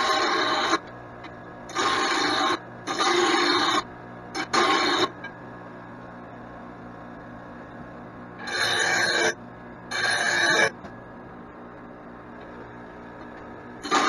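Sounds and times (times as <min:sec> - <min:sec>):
grinder grinding steel blade: 0:00.0 - 0:00.8, 0:01.7 - 0:05.1, 0:08.4 - 0:10.7.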